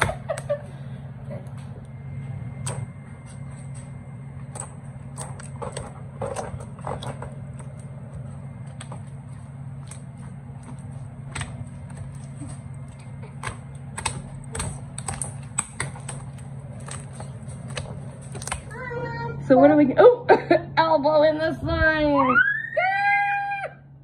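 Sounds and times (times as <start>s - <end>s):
slime clicking and popping: 9.8s - 18.7s.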